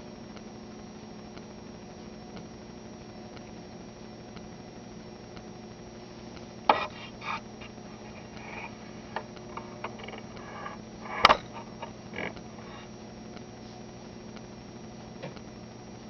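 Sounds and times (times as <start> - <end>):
low electrical hum: 0.0 - 16.0
clicks and knocks: 8.4 - 12.4.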